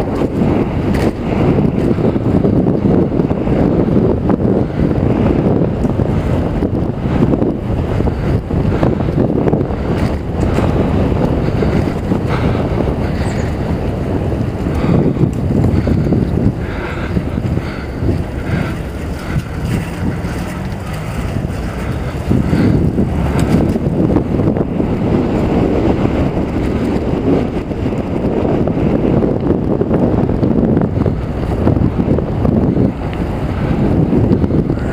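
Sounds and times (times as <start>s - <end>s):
wind rushing over microphone: 0.0s - 34.9s.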